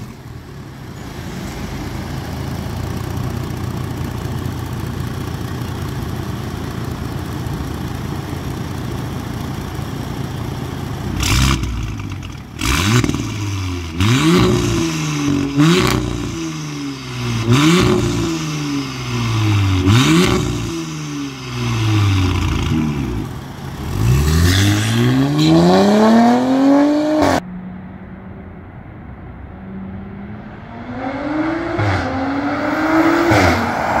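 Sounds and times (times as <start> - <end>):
car engine revving: 0.0 - 28.2, 29.2 - 34.0
car accelerating away: 11.2 - 28.3, 29.4 - 34.0.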